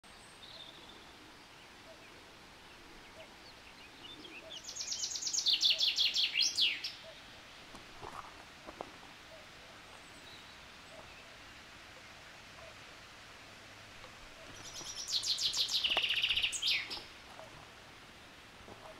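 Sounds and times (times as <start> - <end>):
background hiss: 0.0 - 18.9
songbird singing: 0.0 - 18.9
faint bird chirps: 0.1 - 7.3, 14.3 - 17.5.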